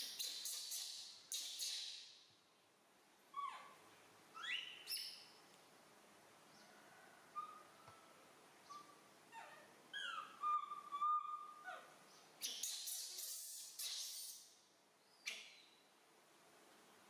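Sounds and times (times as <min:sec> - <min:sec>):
baby monkey coo calls: 0:03.3 - 0:05.1, 0:07.3 - 0:08.1, 0:08.7 - 0:14.5
harsh hissy noise: 0:12.5 - 0:14.5.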